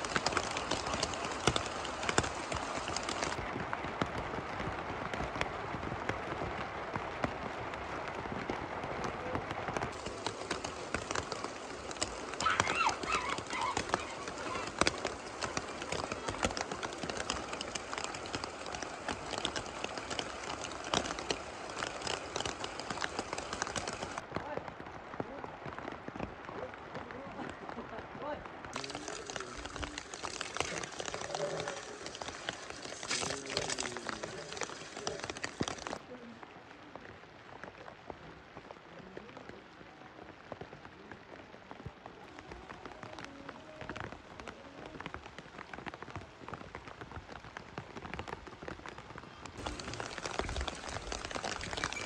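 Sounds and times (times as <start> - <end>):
raindrops ticking close by: 0.0 - 52.0
steady rain: 0.0 - 52.0
water poured out of steel bowl: 28.8 - 36.0, 49.6 - 52.0.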